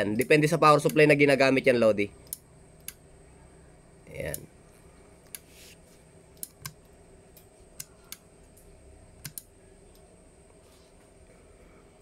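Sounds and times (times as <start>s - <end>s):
sharp control clicks: 0.0s - 1.2s, 2.2s - 3.0s, 6.4s - 10.1s
faint steady hum: 0.0s - 12.0s.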